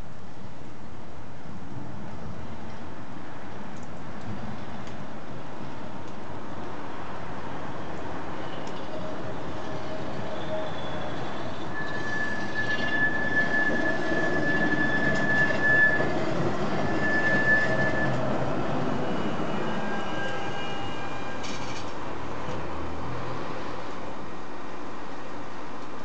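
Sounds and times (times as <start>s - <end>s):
tram rumbling past: 4.2s - 25.5s
tram wheels squealing on rails: 6.7s - 22.2s.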